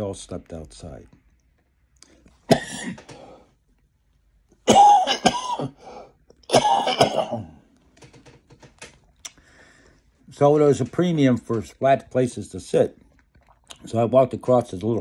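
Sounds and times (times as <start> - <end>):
elderly man coughing hard: 2.5 - 3.1, 4.6 - 5.8, 6.5 - 7.6.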